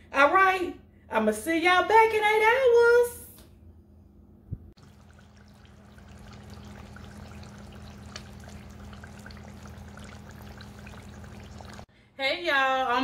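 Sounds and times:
steady low hum: 3.9 - 11.9
juices bubbling in slow cooker: 4.8 - 11.9.

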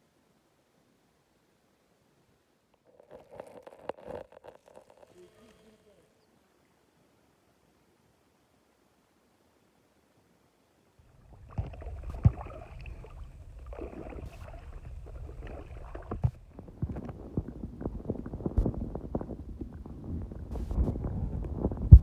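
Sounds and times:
underwater rumble and gurgle: 11.0 - 22.0
paddle splashing in water: 11.1 - 18.2.

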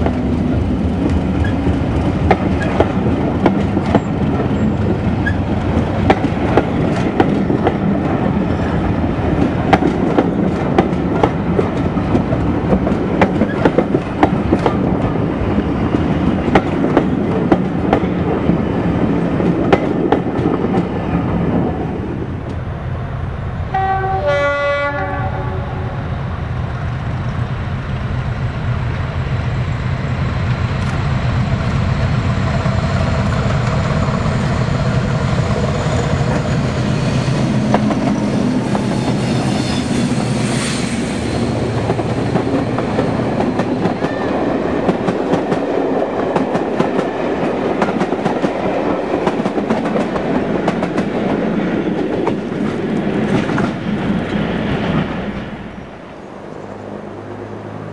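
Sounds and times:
train wheels clattering over rail joints: 0.0 - 15.1
diesel locomotive engine drone: 0.0 - 57.9
train horn: 23.7 - 26.1.

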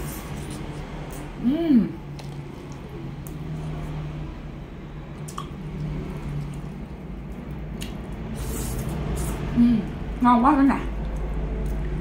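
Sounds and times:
wet chewing sounds: 5.1 - 9.5, 10.9 - 12.0.

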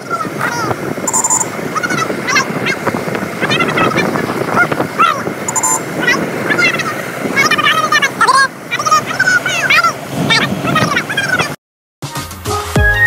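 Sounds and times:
moving vehicle noise: 0.0 - 11.6.

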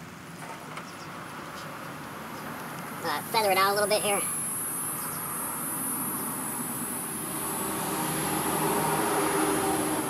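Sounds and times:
steady high-pitched hiss: 0.0 - 10.0
passing vehicle engine: 4.3 - 10.0.

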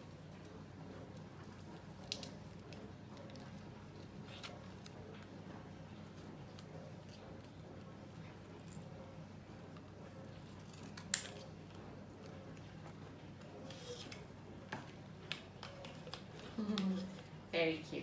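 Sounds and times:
scissors cutting paper: 6.1 - 14.3, 15.2 - 17.2.

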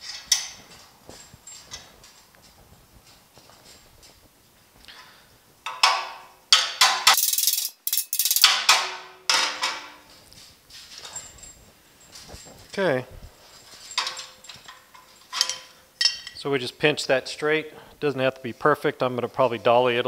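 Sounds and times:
metal clank: 5.7 - 10.2, 13.6 - 16.4.

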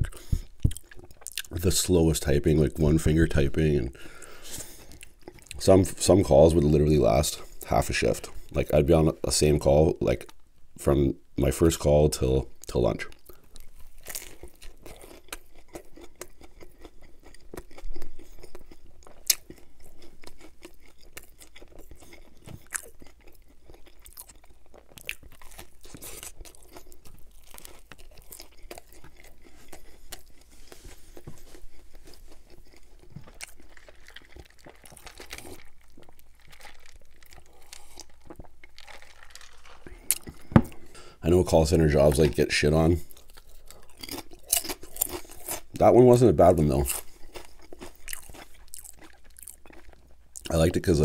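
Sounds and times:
biting and chewing sandwich: 13.1 - 41.1, 43.0 - 50.8.

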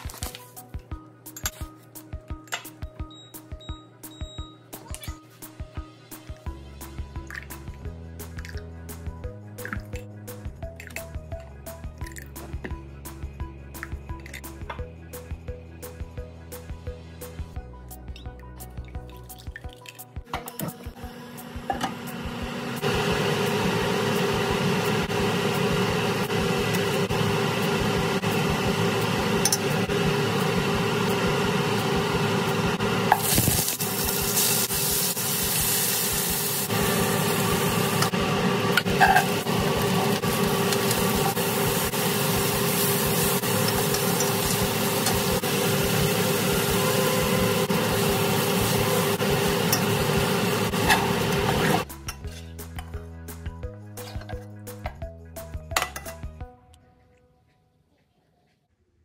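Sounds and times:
food sizzling in hot oil: 22.9 - 51.8.

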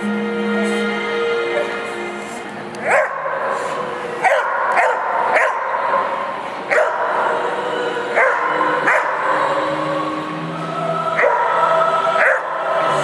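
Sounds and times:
dog barking: 2.8 - 3.5, 4.2 - 6.1, 6.7 - 7.1, 8.2 - 9.4, 11.2 - 11.5, 12.2 - 12.5.

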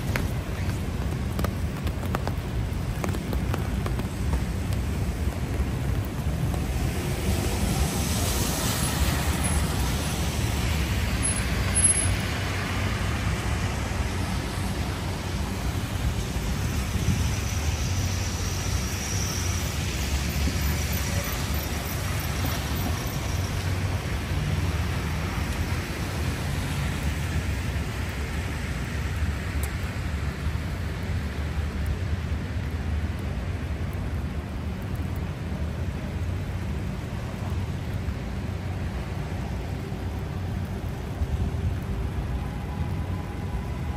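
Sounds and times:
low rumble of engines: 0.0 - 43.9
rain pattering: 0.0 - 43.9
tyres hissing on wet road: 0.0 - 43.9.

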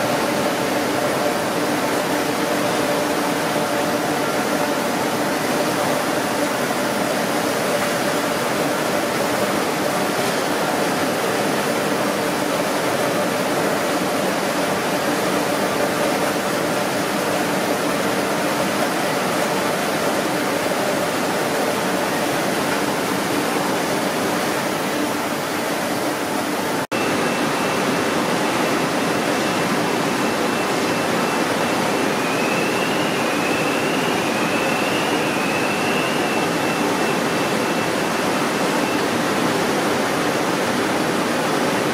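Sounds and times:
factory machinery and ventilation rushing: 0.0 - 41.9
faint high whine: 27.0 - 39.7.

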